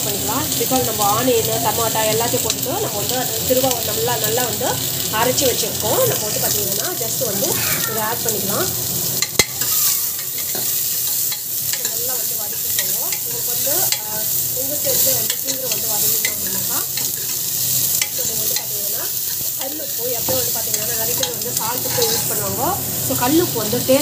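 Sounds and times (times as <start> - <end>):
onions sizzling in oil: 0.0 - 24.0
spatula scraping a pan: 9.2 - 14.0, 14.9 - 22.6
spatula clacking on a pan: 9.2 - 22.4.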